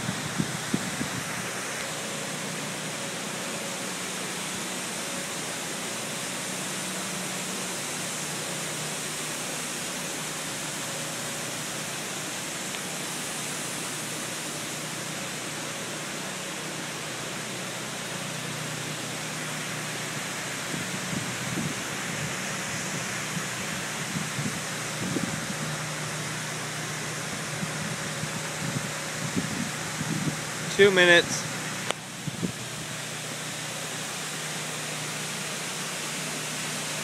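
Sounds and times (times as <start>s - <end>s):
foam spraying with rushing hiss: 0.0s - 37.0s.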